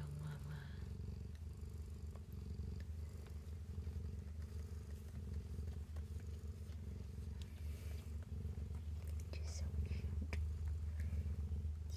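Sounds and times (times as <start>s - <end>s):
cat purring: 0.0s - 11.9s
faint clicks: 2.1s - 9.4s.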